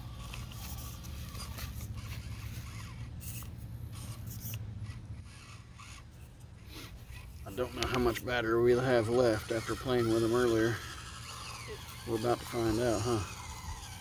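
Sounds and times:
steady low hum: 0:00.0 - 0:14.0
tires scraping on rock: 0:00.0 - 0:14.0.

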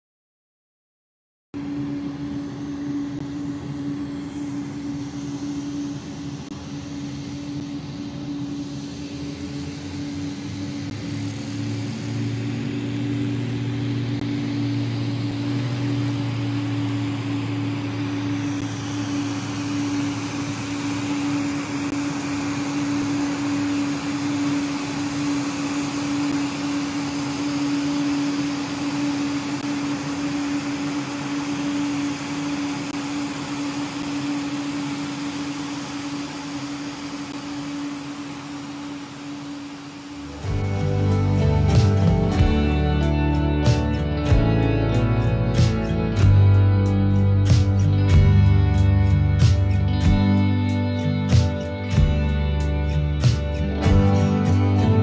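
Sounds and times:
propeller aircraft engine drone: 0:01.6 - 0:55.0.

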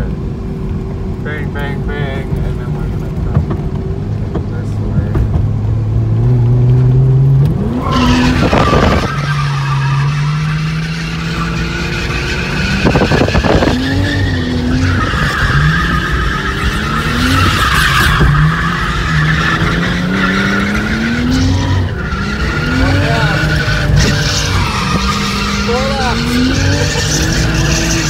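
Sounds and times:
car engine revving: 0:00.0 - 0:28.0
tyres squealing: 0:07.6 - 0:28.0.

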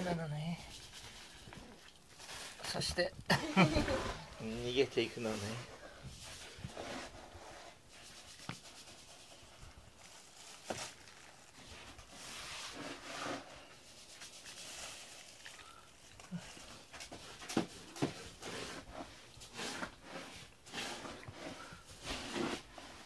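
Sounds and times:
hand stroking cat fur: 0:03.6 - 0:15.5.

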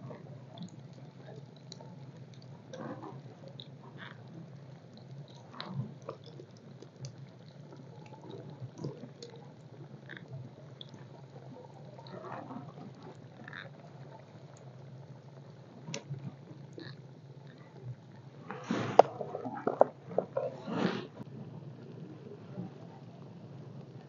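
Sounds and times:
small crackles and pops: 0:00.0 - 0:24.0
food frying in hot oil: 0:00.2 - 0:12.2.

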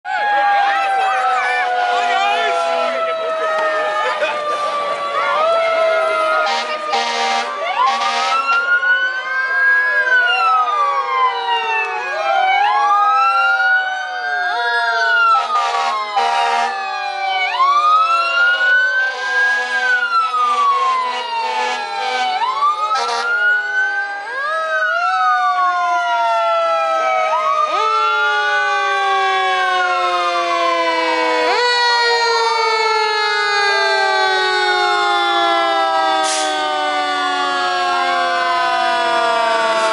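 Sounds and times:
fire engine sirens wailing: 0:00.0 - 0:39.9
short noisy horn blasts: 0:06.5 - 0:08.5.

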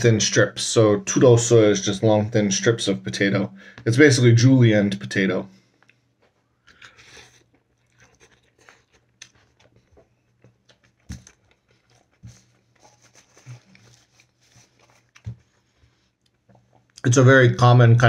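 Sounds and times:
close-up chewing with crunching: 0:05.6 - 0:17.0.

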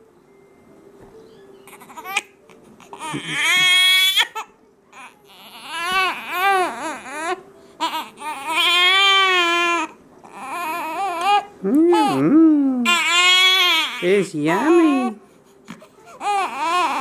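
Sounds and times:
baby crying: 0:01.7 - 0:15.2, 0:15.9 - 0:17.0.

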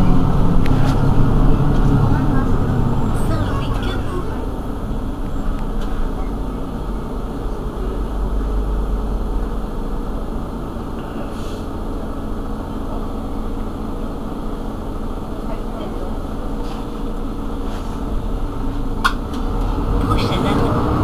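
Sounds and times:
bus engine idling: 0:00.0 - 0:21.0.

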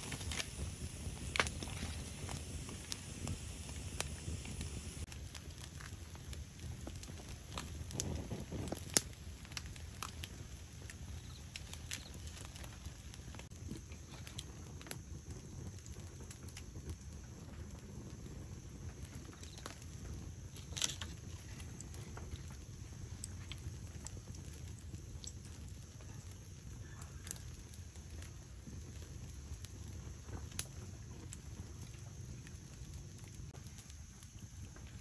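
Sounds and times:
low steady rumble: 0:00.0 - 0:26.2
wood fire crackling and popping: 0:00.0 - 0:35.0.

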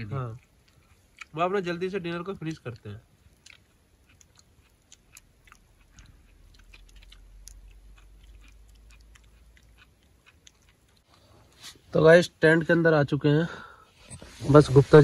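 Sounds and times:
people chewing food: 0:00.0 - 0:11.8.

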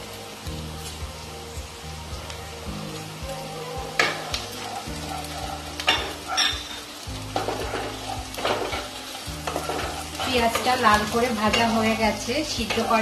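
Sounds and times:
onions sizzling in oil: 0:00.0 - 0:13.0
spatula scraping and knocking a pan: 0:05.8 - 0:11.8.

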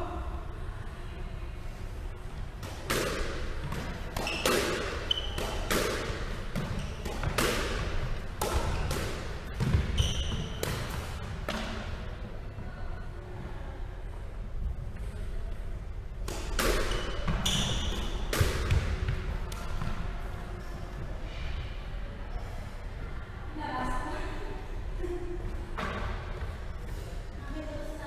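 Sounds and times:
squash ball impacts: 0:02.4 - 0:12.2, 0:16.2 - 0:20.2
sneaker squeaks on wooden floor: 0:04.2 - 0:05.7, 0:06.6 - 0:07.1, 0:09.6 - 0:10.6, 0:16.9 - 0:18.2.

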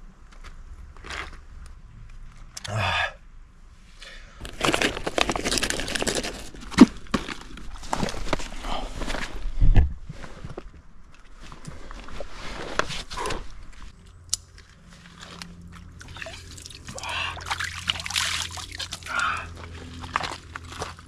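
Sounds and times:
water trickling: 0:15.8 - 0:20.4
hands splashing in water: 0:16.0 - 0:19.2.

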